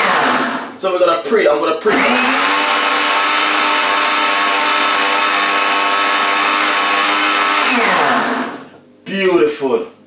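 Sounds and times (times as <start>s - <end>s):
blender motor whining: 0.0s - 0.7s, 1.8s - 8.7s.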